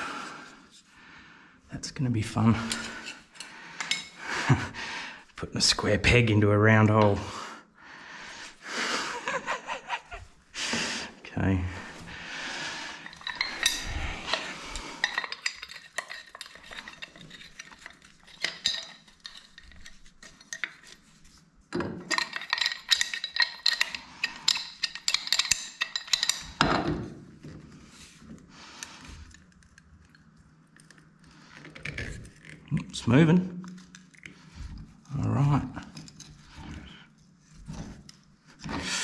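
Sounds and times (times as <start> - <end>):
metal hand tools clinking: 13.0 - 21.0, 22.0 - 26.7.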